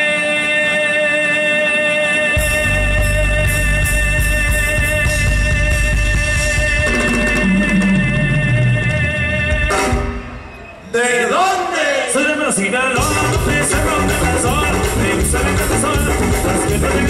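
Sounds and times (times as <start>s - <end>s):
low bass notes: 2.4s - 10.1s, 13.0s - 17.0s
drum kit: 2.4s - 10.6s, 13.0s - 17.0s
electric guitars: 13.0s - 17.0s.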